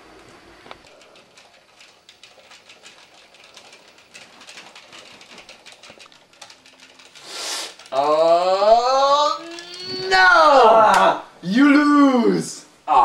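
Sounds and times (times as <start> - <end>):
game controller buttons clicking: 0.8 - 8.1
short hiss: 7.2 - 7.8.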